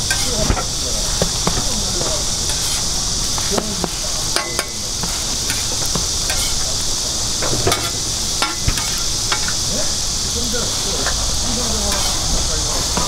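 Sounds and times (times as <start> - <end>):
food sizzling on griddle: 0.0 - 13.0
metal utensils clicking: 4.3 - 6.6.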